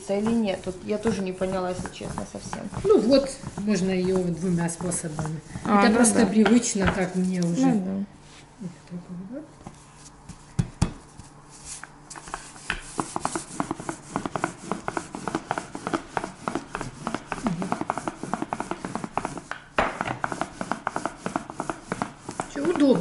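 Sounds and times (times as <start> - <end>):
rolling pin rubbing over dough: 0.0 - 8.5, 9.6 - 23.0.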